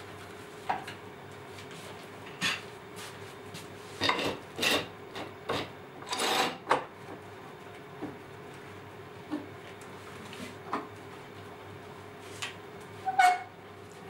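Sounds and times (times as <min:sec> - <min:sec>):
metal clamps scraping on wood: 0:06.1 - 0:06.6.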